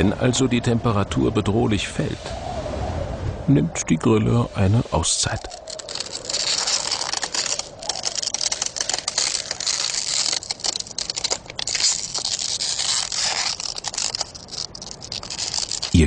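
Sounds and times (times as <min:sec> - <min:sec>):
ice crackling: 0:04.6 - 0:16.0.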